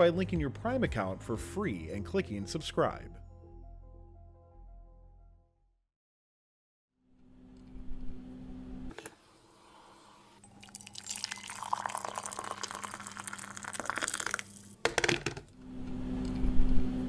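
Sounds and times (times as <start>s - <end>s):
liquid pouring into a cup: 10.4s - 15.1s.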